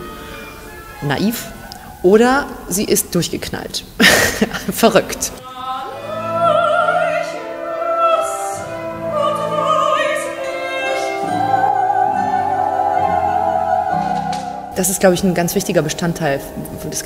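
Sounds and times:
instrumental accompaniment: 0:00.0 - 0:02.7, 0:05.9 - 0:17.0
operatic soprano singing: 0:05.4 - 0:17.0.

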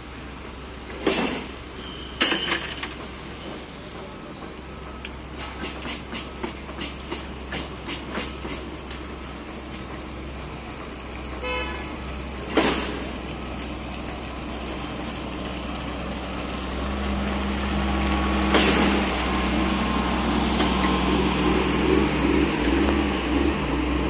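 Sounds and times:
diesel engine running: 0:00.0 - 0:24.0
short horn toot: 0:11.4 - 0:11.9.

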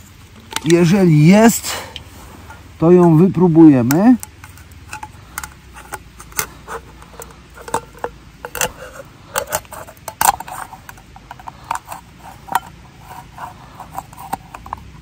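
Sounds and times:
knife scraping metal tin lid: 0:04.2 - 0:15.0.

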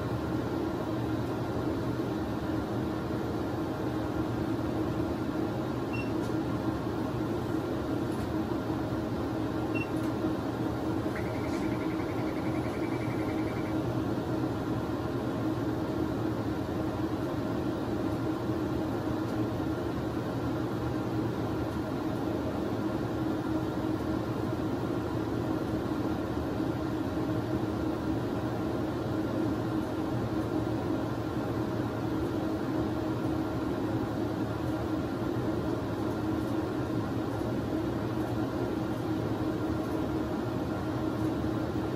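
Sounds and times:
equipment and ventilation hum: 0:00.0 - 0:41.9
rapid high beeps: 0:09.7 - 0:10.0, 0:11.1 - 0:13.8.

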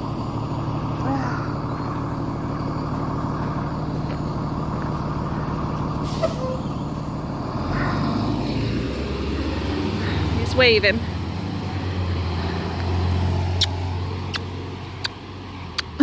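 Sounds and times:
bus engine idling: 0:00.0 - 0:16.0
air brake hiss: 0:06.0 - 0:06.6.

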